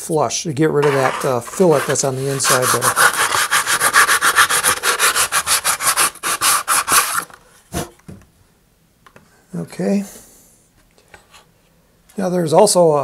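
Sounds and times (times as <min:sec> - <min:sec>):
sandpaper rasping inside tube: 0:00.8 - 0:07.3.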